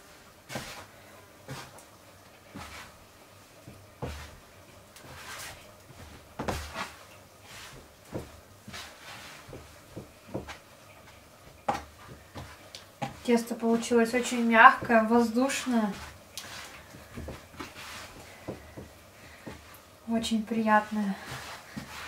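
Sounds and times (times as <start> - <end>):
dough thumping and slapping: 3.6 - 19.8.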